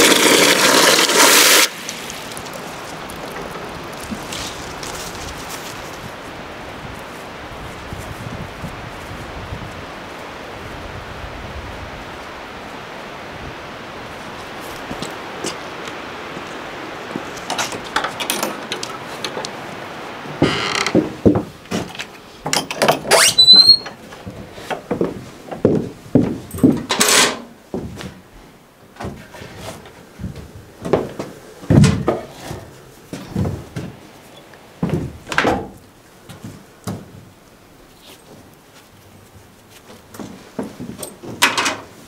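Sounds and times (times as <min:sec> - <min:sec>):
steady hiss: 0:00.0 - 0:22.7
brief squeak: 0:23.1 - 0:23.9
objects knocking and clattering: 0:40.2 - 0:41.9.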